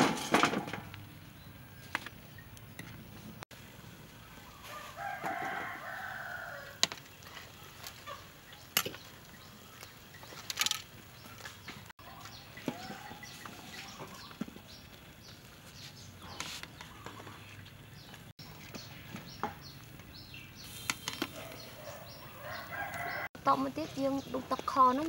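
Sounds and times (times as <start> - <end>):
rooster crowing: 4.5 - 6.8, 21.5 - 23.4.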